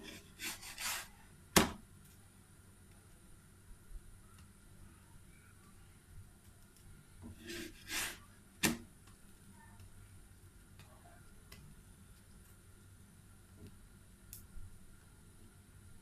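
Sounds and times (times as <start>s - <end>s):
spatula scraping on pan: 0.0s - 1.1s, 7.3s - 8.2s.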